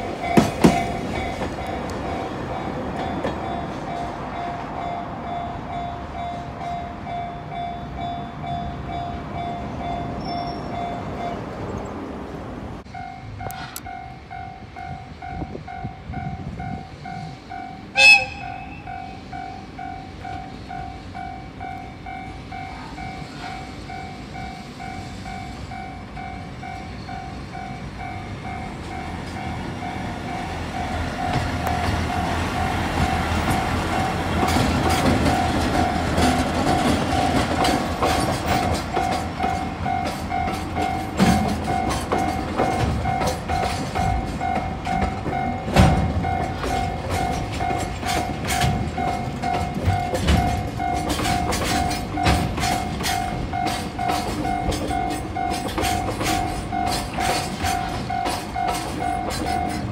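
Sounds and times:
wheels clicking over rail joints: 0.0s - 5.2s, 12.8s - 59.9s
level-crossing warning bell: 0.0s - 11.8s, 12.8s - 59.9s
freight train rolling past: 0.0s - 59.9s
train horn blast: 17.9s - 19.0s.

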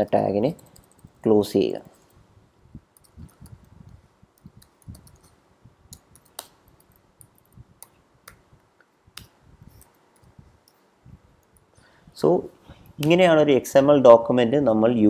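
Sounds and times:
keyboard keys clicking: 0.0s - 1.2s.

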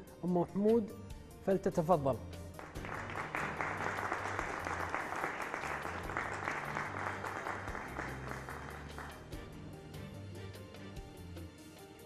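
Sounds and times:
audience applauding: 2.6s - 9.3s.

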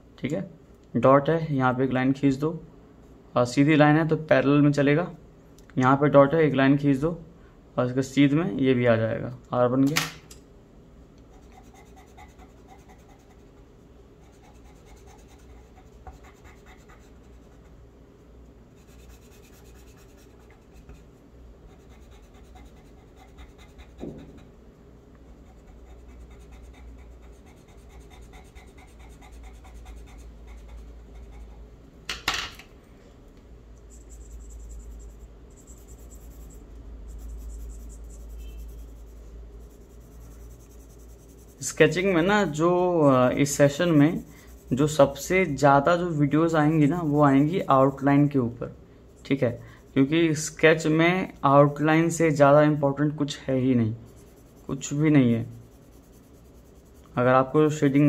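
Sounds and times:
pencil scratching on paper: 11.3s - 17.7s, 18.8s - 24.5s, 25.3s - 31.6s, 33.9s - 48.3s, 49.1s - 52.6s, 54.0s - 58.0s.

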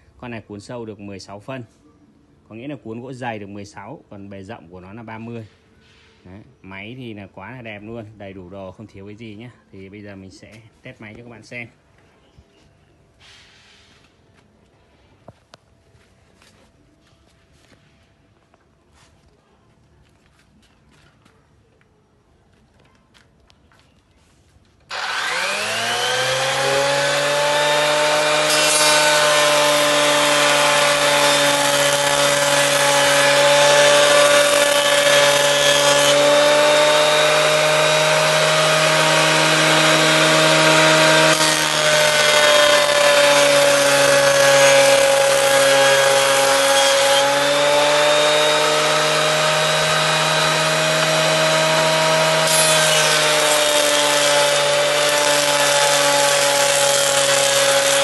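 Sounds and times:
planer motor whining: 24.9s - 58.0s.

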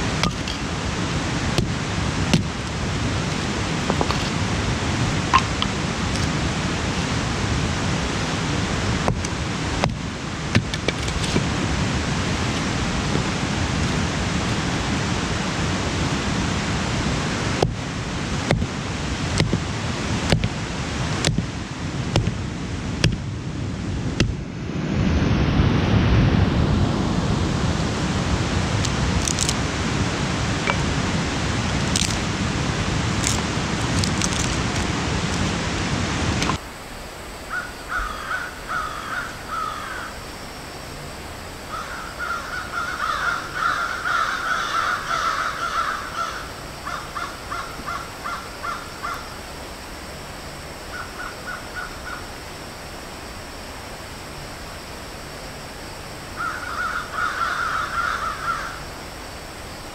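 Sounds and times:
loud steady rushing noise: 0.0s - 59.9s
crow cawing: 37.5s - 40.2s, 41.7s - 49.3s, 50.9s - 52.3s, 56.4s - 58.9s.

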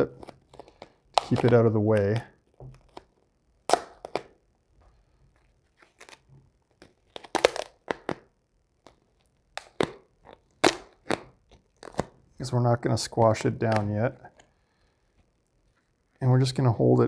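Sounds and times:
vinyl film crackling: 0.0s - 3.1s.

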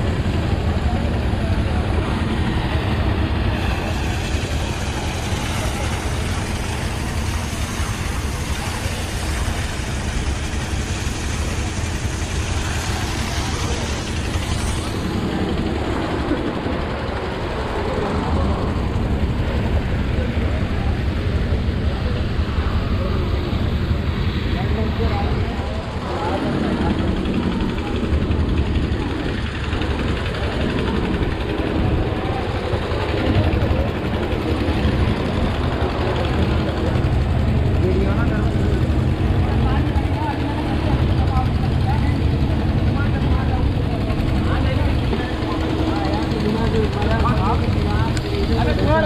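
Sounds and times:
people talking: 0.0s - 49.0s
small water pump engine running: 0.0s - 49.0s
water gushing from hose: 0.2s - 16.2s.

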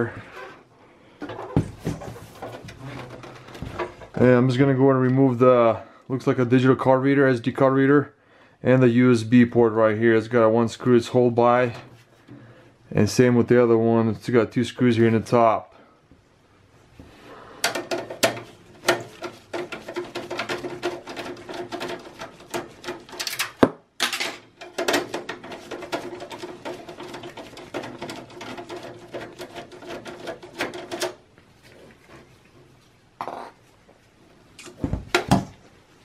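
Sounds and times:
rapid metal clicking: 24.6s - 31.2s.

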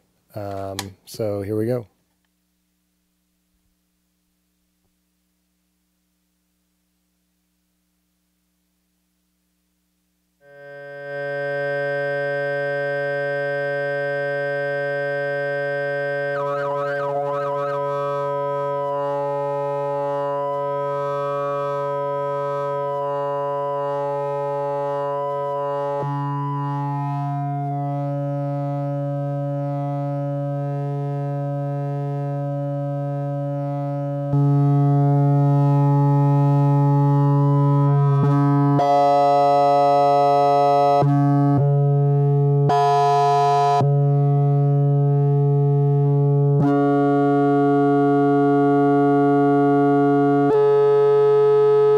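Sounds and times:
synthesizer sustained tone: 10.4s - 41.1s.

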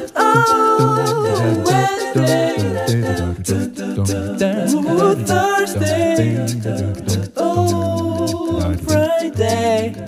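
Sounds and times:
a cappella singing: 0.0s - 10.0s
light clicking percussion: 0.0s - 10.0s.

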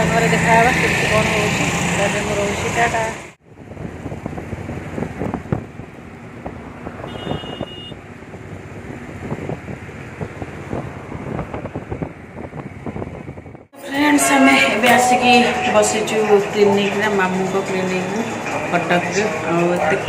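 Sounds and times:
wind buffeting microphone: 0.0s - 13.8s
vehicle road noise: 0.0s - 20.0s.

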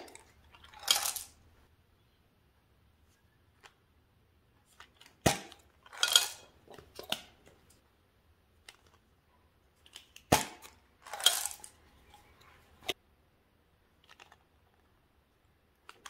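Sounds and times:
candies rattling into glass dish: 0.1s - 1.4s, 5.8s - 6.5s, 11.0s - 11.8s.

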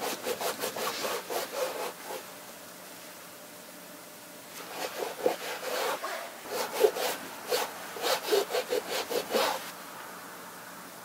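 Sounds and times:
scrubbing rubber shoe sole: 0.0s - 2.2s, 4.6s - 9.7s.

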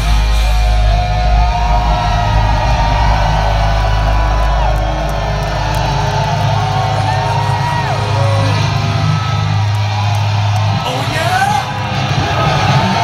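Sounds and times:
live metal band chord: 0.0s - 9.8s
crowd cheering and whooping: 0.0s - 13.0s.

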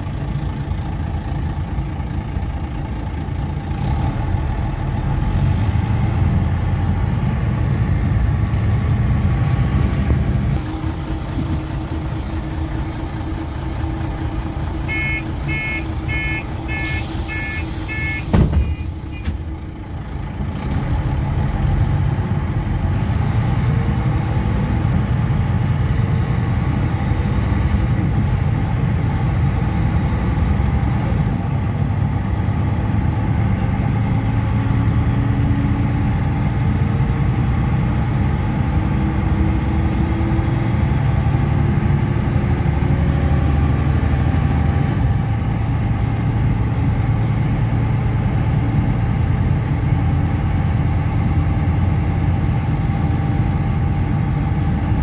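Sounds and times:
bus diesel engine under load: 0.0s - 55.0s
door warning beeps: 14.9s - 19.4s
bus door shutting: 16.7s - 19.6s
air hiss: 16.8s - 19.2s.

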